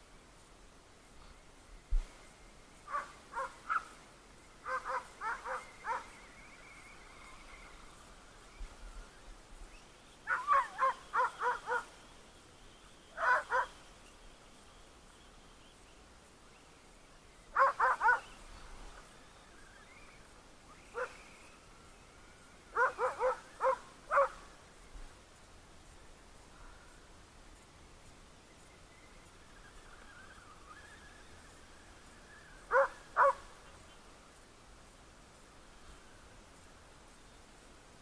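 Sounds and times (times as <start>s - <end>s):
dog barking high-pitched: 10.3s - 11.9s, 13.2s - 13.7s, 17.6s - 18.3s, 22.8s - 24.4s, 32.7s - 33.4s.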